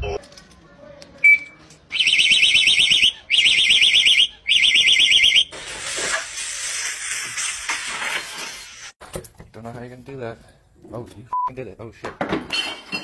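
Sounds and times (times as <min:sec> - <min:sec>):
warbling car alarm siren: 0:02.0 - 0:05.5.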